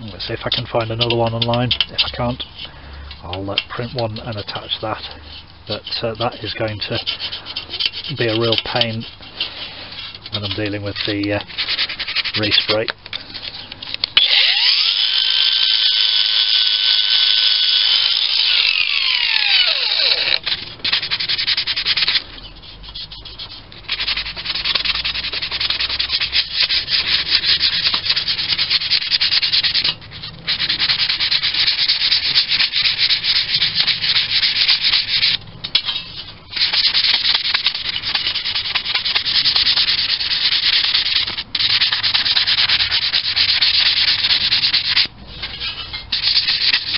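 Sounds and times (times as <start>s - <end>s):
abrasive pad rubbing metal: 0.0s - 46.9s
high whine falling in pitch: 18.0s - 20.4s.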